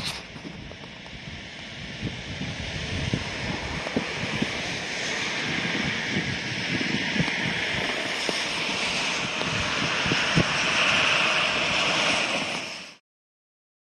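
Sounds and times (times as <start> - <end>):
wind buffeting microphone: 0.0 - 12.8
cars passing on wet road: 2.6 - 12.9.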